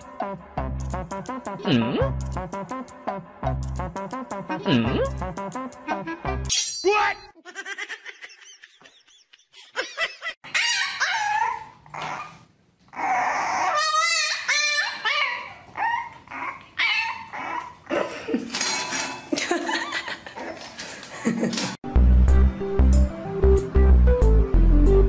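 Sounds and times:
puppy yipping and whining: 10.4 - 17.9.

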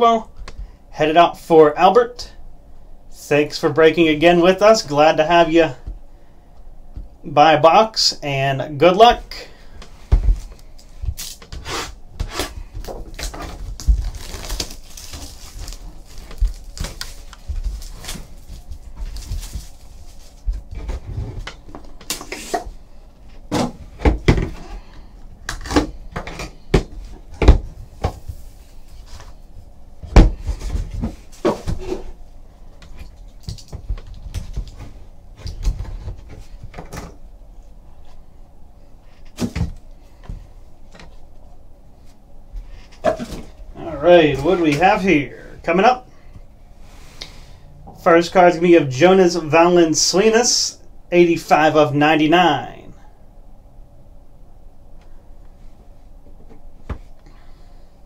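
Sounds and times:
cardboard scraping and rustling: 11.3 - 22.7.

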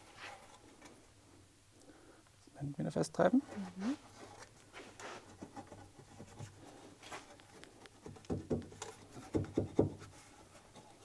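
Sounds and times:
dull knocks on brick: 8.1 - 10.0.

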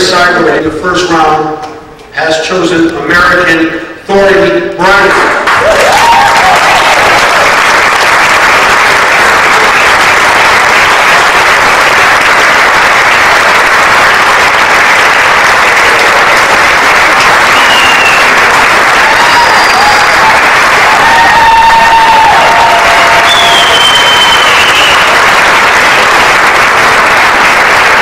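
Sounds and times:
audience applauding: 4.9 - 28.0.

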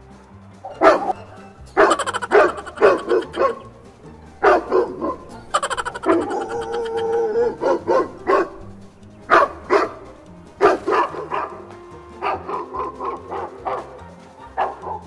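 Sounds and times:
music: 0.0 - 15.0
dog barks through loudspeaker: 0.7 - 1.2, 1.8 - 3.7, 4.4 - 5.5, 7.0 - 15.0.

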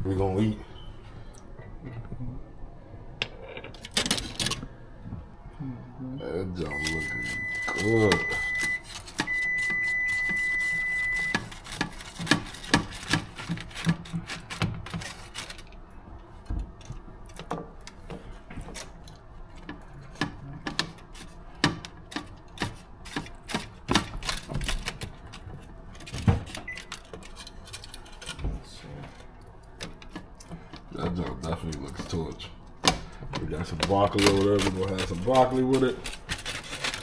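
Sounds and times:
high electronic beep: 6.7 - 11.4.

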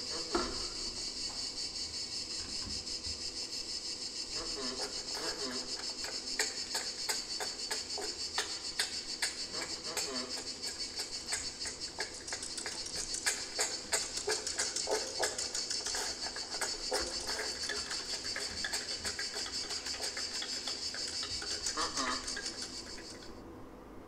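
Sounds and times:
rapid electronic ticking: 10.4 - 23.3.

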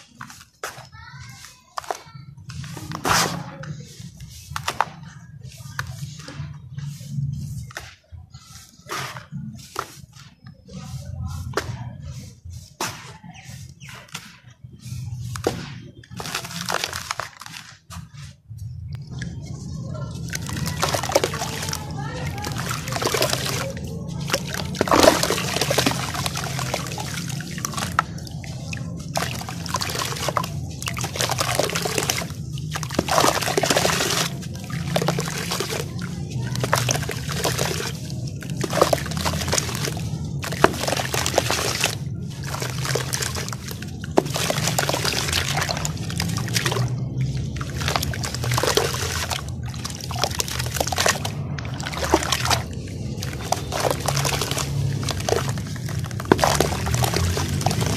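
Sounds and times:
hands squishing wet sand: 0.0 - 57.9
sand pouring into water: 20.1 - 57.9.

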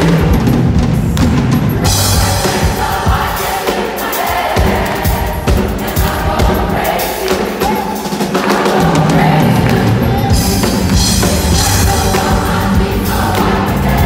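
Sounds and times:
bass guitar: 0.0 - 2.5, 9.0 - 14.0
keyboard: 0.0 - 14.0
gospel choir singing: 1.6 - 14.0.

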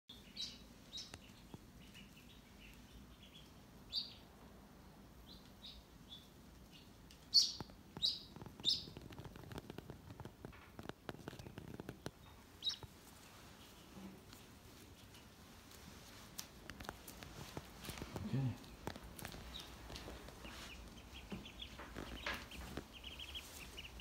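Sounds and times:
duckling peeping: 0.1 - 4.4, 5.1 - 9.6, 11.2 - 24.0
rustling and clicking of handling: 7.0 - 24.0.

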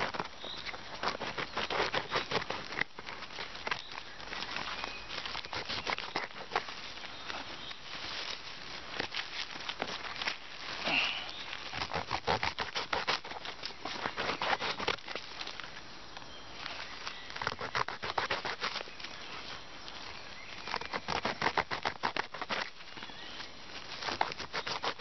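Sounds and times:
plastic scraper sawing bramble stem: 0.9 - 3.8, 5.4 - 6.8, 11.7 - 15.2, 17.4 - 18.8, 20.7 - 22.8, 24.0 - 25.0.

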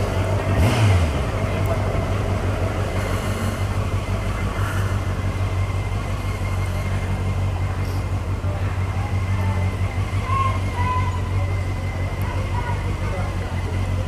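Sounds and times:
motorcycle engine running at low revs: 0.0 - 14.0.

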